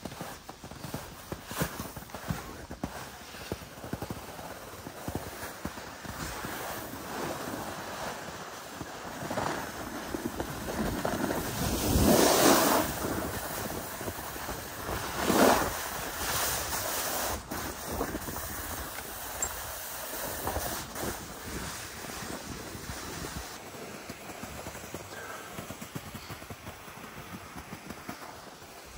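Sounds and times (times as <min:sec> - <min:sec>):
snowboard scraping over snow: 0:00.0 - 0:28.9
wind on microphone: 0:09.8 - 0:23.6.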